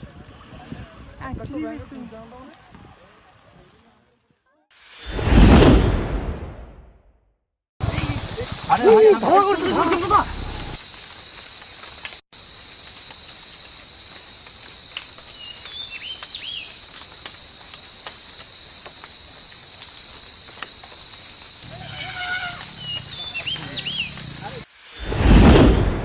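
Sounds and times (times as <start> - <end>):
insect chorus drone: 7.8 - 26.0
bird chirps: 21.6 - 24.6.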